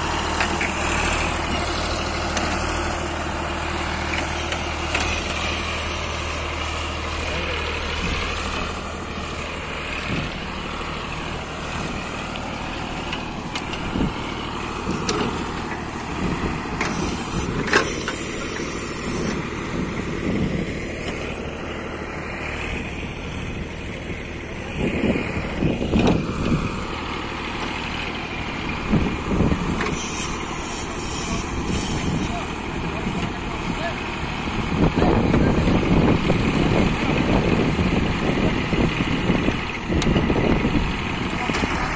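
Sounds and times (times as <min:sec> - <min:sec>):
tractor diesel engine running: 0:00.0 - 0:41.9
hiss: 0:16.8 - 0:19.4, 0:29.9 - 0:32.4, 0:41.6 - 0:41.9.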